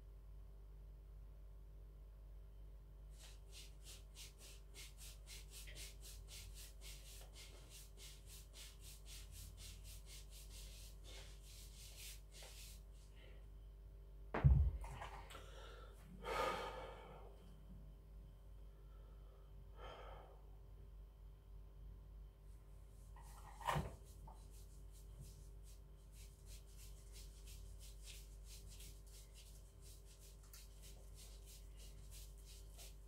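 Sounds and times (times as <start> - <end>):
wrist roller rasping strokes: 3.2 - 13.1, 22.9 - 33.0
person exhaling loudly: 15.4 - 17.3.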